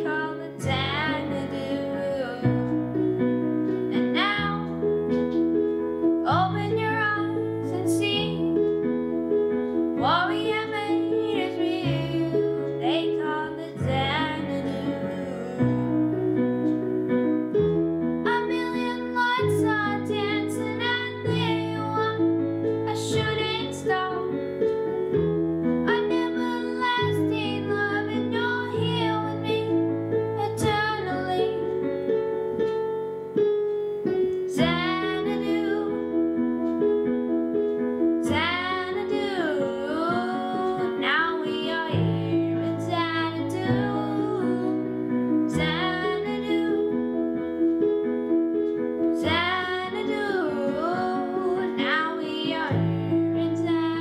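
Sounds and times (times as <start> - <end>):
digital piano chords: 0.0 - 54.0
boy singing: 38.3 - 44.8.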